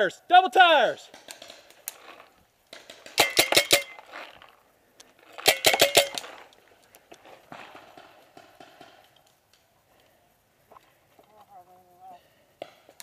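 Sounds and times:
paintball marker firing: 1.1s - 1.9s.

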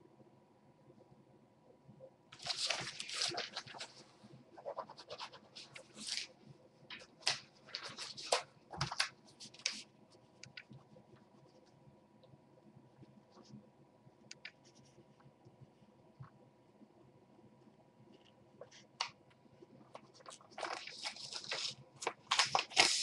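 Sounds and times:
faint steady hum: 0.0s - 23.0s
scratching and rustling: 2.4s - 11.8s, 19.8s - 23.0s.

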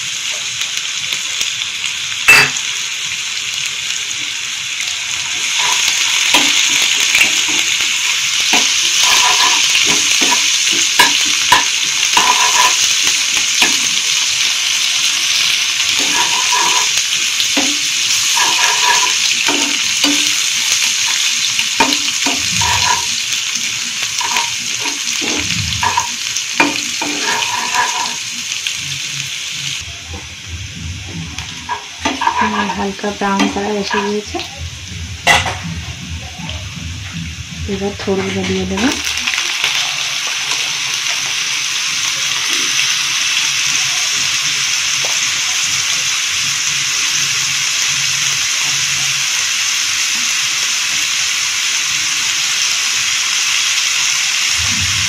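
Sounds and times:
onions sizzling in oil: 0.0s - 55.0s
spatula scraping and tapping pan: 8.5s - 13.9s, 16.0s - 17.0s, 17.6s - 20.4s, 21.0s - 23.2s, 24.2s - 28.2s, 31.1s - 38.9s.

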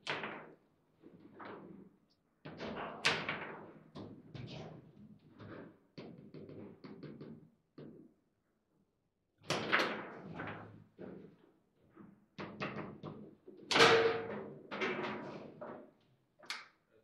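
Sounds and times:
table football knocks and clacks: 2.5s - 8.1s, 12.4s - 14.4s.

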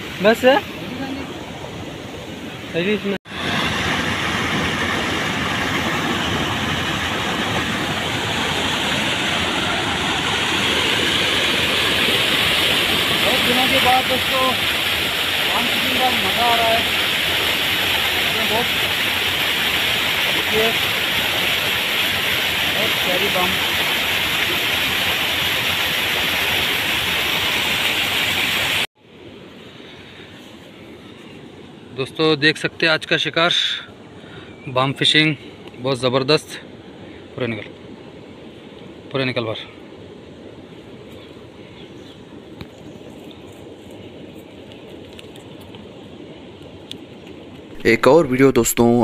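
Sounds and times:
loud rushing hiss: 3.3s - 28.9s
quiet outdoor background: 28.9s - 49.0s.

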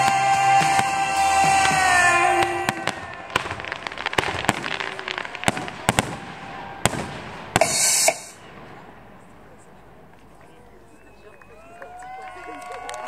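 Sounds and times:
fireworks bangs and crackles: 0.0s - 11.5s
loud hissing rush: 7.4s - 9.6s.

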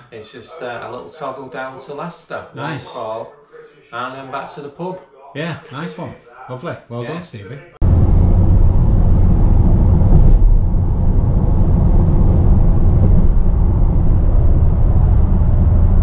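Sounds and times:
road and engine noise in van cab: 7.8s - 16.0s.

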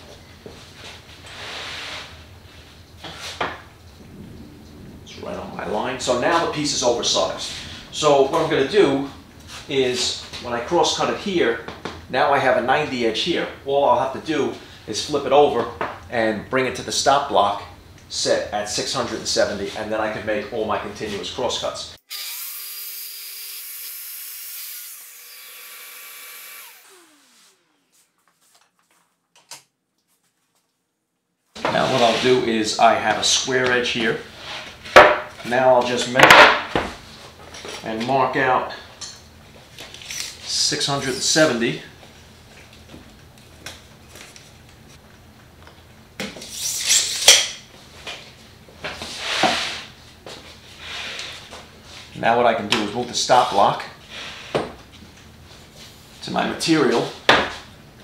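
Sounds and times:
track saw cutting plywood: 22.1s - 28.0s
saw spinning down whine: 22.1s - 28.1s
plywood panel scraping on table: 49.1s - 49.9s.

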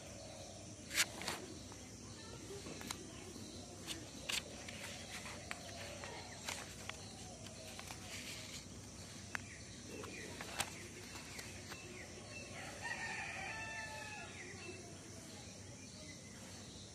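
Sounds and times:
background hiss: 0.0s - 16.9s
notebook pages turning: 0.9s - 1.5s, 3.8s - 12.1s.

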